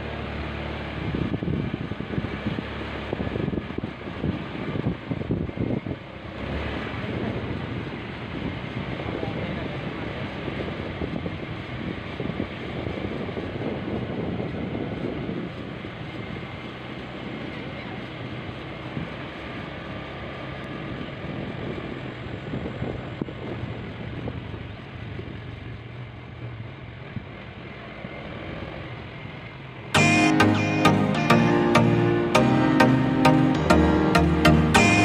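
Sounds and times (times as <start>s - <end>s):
wind buffeting microphone: 1.0s - 6.2s, 7.0s - 16.4s.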